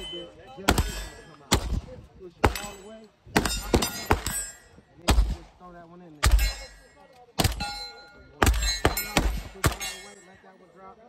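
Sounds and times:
metallic ring: 0.0s - 1.5s, 2.5s - 4.9s, 7.6s - 10.6s
gunshots: 0.0s - 6.8s, 7.4s - 10.1s.

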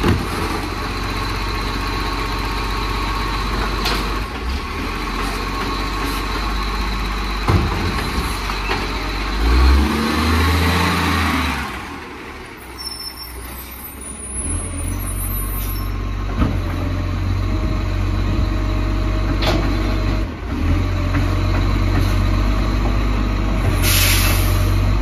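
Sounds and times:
diesel truck engine droning: 0.0s - 25.0s
air hissing: 23.8s - 24.7s.

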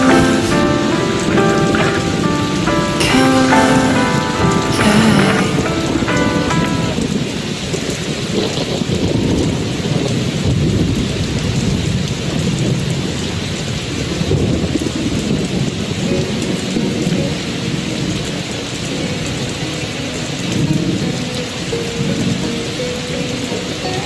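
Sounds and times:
steady rain: 0.0s - 24.0s
low rumble of thunder: 7.0s - 17.3s.

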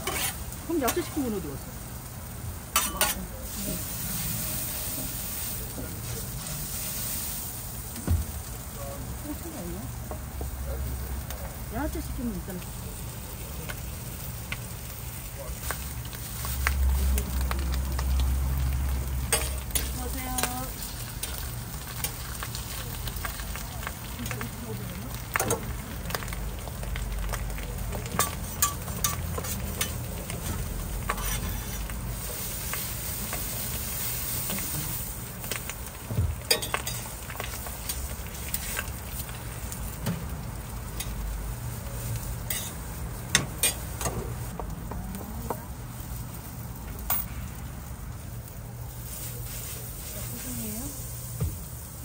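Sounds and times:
metal utensils scraping a hot plate: 0.0s - 1.1s, 2.7s - 3.2s, 19.3s - 22.2s, 28.2s - 31.9s, 36.5s - 38.9s, 42.4s - 44.2s
food sizzling on a griddle: 0.0s - 52.0s.

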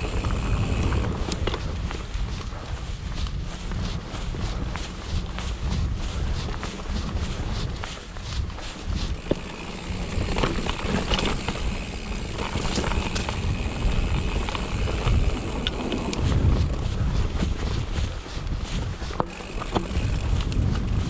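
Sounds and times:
bike knocking and rattling: 0.0s - 21.0s
wind buffeting microphone: 0.0s - 21.0s
tyres on rocks: 9.1s - 16.3s.

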